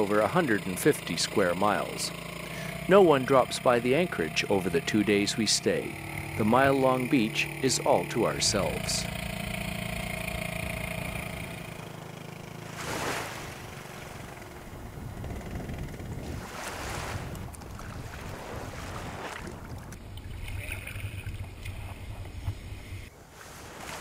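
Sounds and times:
outboard motor running: 0:00.0 - 0:23.1
water sloshing: 0:00.0 - 0:24.0
dinghy swishing onto beach: 0:12.6 - 0:14.3, 0:16.2 - 0:19.8, 0:23.2 - 0:24.0
wind noise on microphone: 0:14.6 - 0:23.1.

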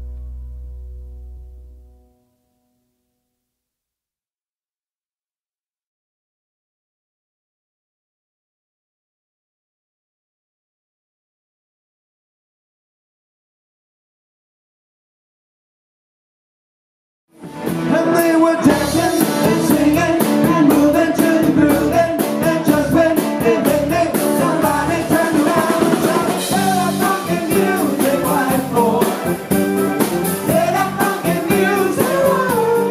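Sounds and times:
rock song with singing: 0:17.5 - 0:32.9.

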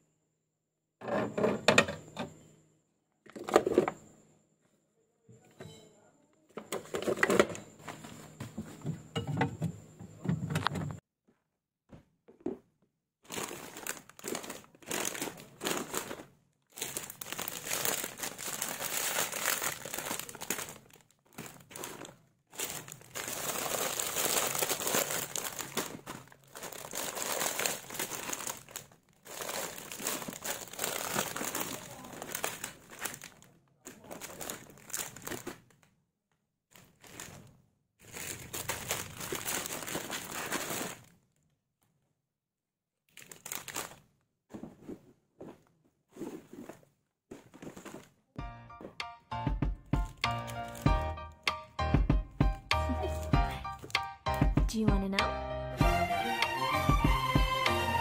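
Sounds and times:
plastic bags crinkling: 0:13.2 - 0:36.0, 0:36.7 - 0:41.6, 0:43.1 - 0:44.2, 0:50.0 - 0:51.0.

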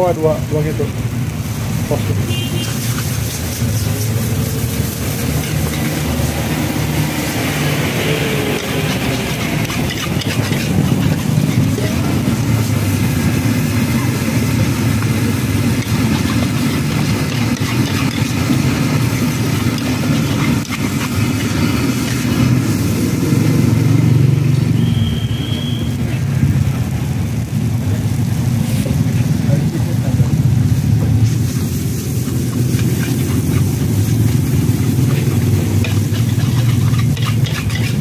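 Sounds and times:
metal spatula scraping wok: 0:01.9 - 0:23.8, 0:30.4 - 0:38.0.

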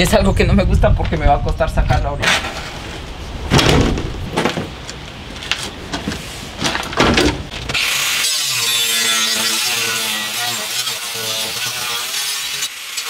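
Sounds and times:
knocks and clunks: 0:02.2 - 0:07.8
power tool buzzing: 0:07.6 - 0:13.0.

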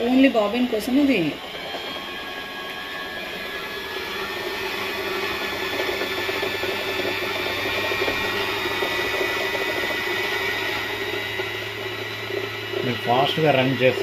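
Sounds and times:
sewing machine motor winding bobbin: 0:00.6 - 0:14.0.

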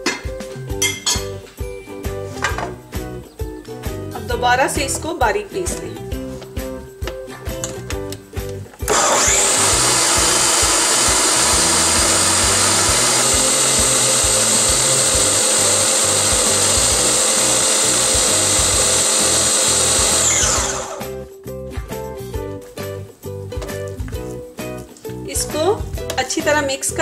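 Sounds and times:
faint background music: 0:00.0 - 0:08.9, 0:17.1 - 0:27.0
food processor motor whining: 0:08.8 - 0:21.2.

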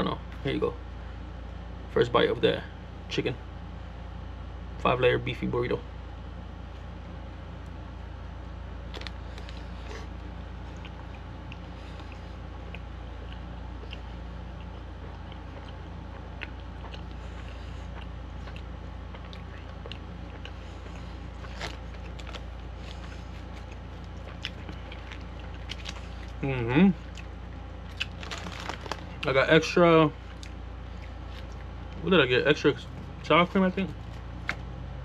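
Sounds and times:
low hum: 0:00.0 - 0:35.0
person chewing food: 0:08.4 - 0:29.3, 0:30.2 - 0:32.0.

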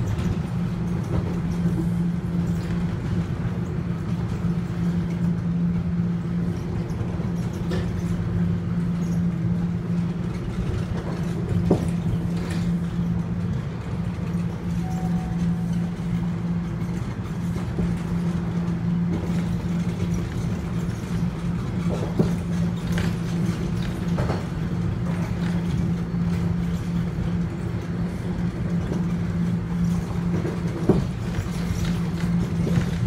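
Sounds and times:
subway train hum: 0:00.0 - 0:33.0
wheel and track rumble: 0:00.0 - 0:33.0.

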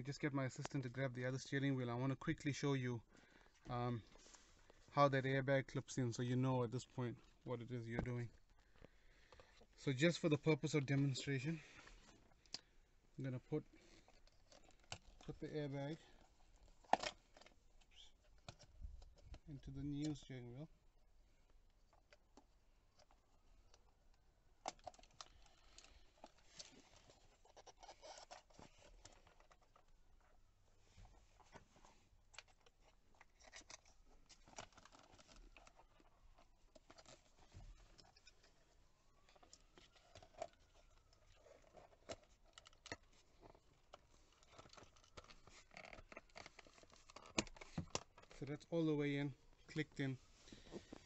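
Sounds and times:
plastic clicks and scraping: 0:13.7 - 0:20.2, 0:24.6 - 0:30.4, 0:31.1 - 0:48.5.

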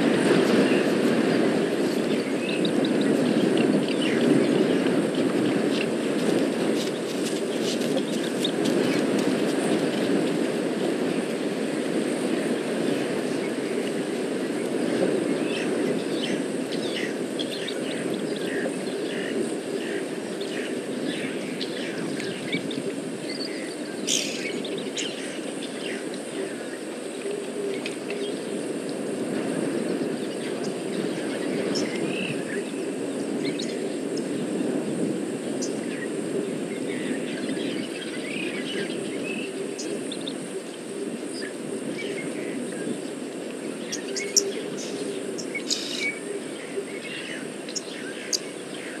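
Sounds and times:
bird chirps and calls: 0:23.4 - 0:25.8.

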